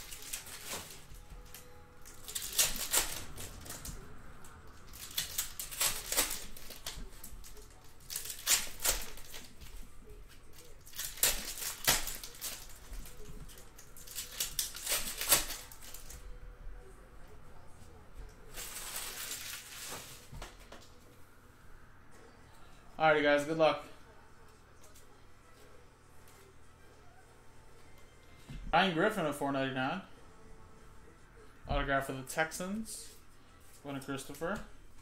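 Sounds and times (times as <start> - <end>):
foil card packs tearing: 0.0 - 4.0, 4.7 - 9.7, 10.5 - 16.2, 18.5 - 20.3
wrappers crinkling: 0.0 - 16.2, 18.5 - 20.3.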